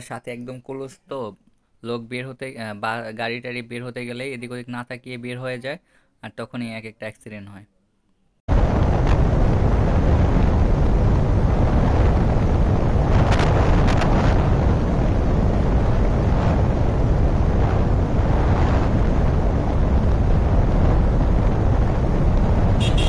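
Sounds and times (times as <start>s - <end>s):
wind rushing over microphone: 8.5s - 23.0s
motorcycle engine: 9.3s - 23.0s
short crackles: 12.3s - 15.3s.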